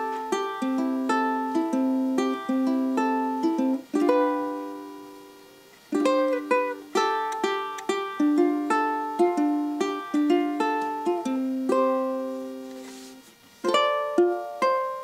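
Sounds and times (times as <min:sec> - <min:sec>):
ukulele fingerpicked melody: 0:00.0 - 0:15.0.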